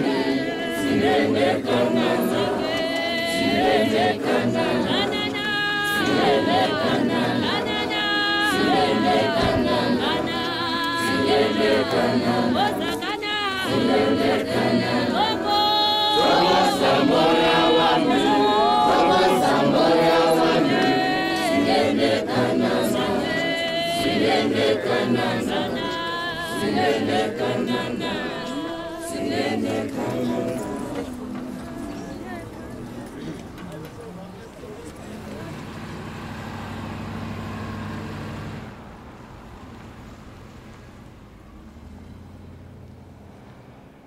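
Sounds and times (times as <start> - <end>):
group singing unaccompanied: 0.0 - 33.4.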